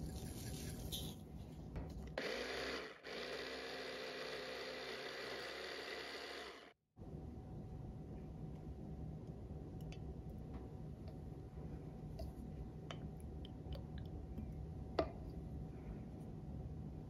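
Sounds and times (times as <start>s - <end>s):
electric blender running: 2.2s - 6.8s.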